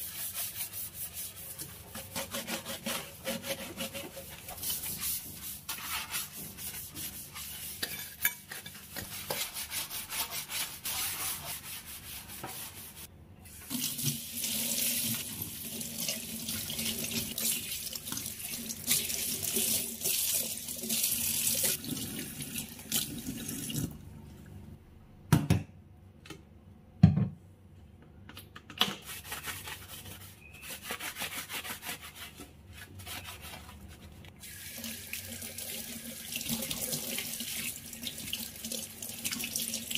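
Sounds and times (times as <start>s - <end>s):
stiff brush scrubbing: 0.0s - 8.0s.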